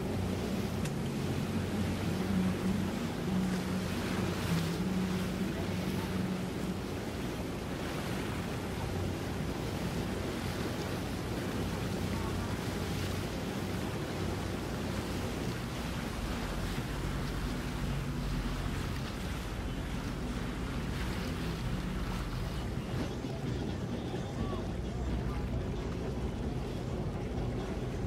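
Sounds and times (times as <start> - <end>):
faint low boat engine hum: 0.0 - 28.0
waves: 0.0 - 28.0.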